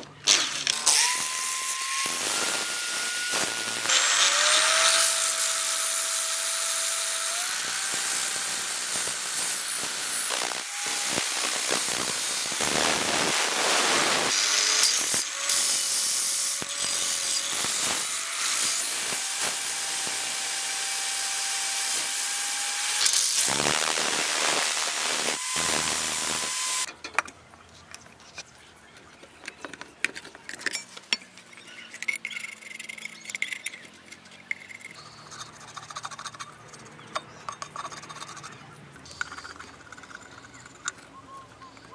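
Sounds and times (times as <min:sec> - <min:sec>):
drill sanding steel: 0:00.3 - 0:26.9
faint scraping and tapping: 0:26.9 - 0:41.9.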